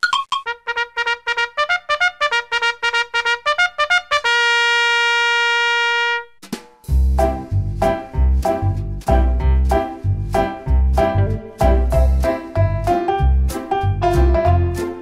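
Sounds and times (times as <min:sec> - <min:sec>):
staccato intro music: 0:06.4 - 0:15.0
music with heavy bass beat: 0:06.9 - 0:14.4.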